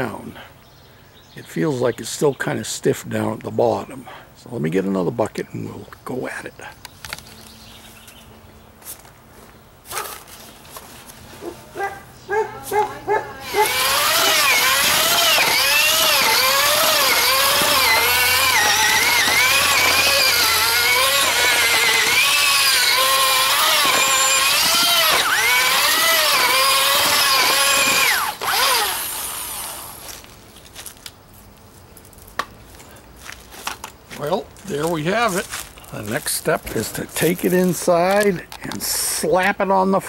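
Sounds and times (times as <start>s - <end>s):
electric drill mixing mortar: 13.4s - 30.3s.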